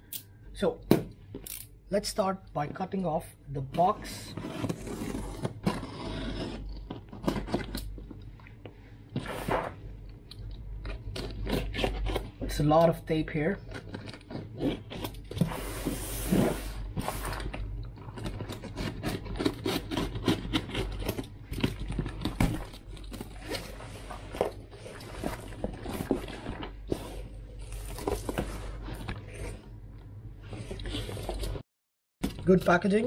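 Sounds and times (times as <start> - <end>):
box cutter slicing tape: 18.5 - 21.2.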